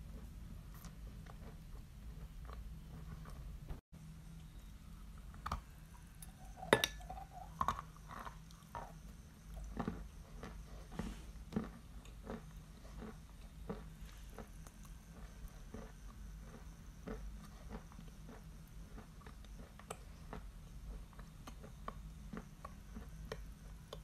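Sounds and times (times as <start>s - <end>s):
chalk being chewed with crunching: 7.3s - 24.0s.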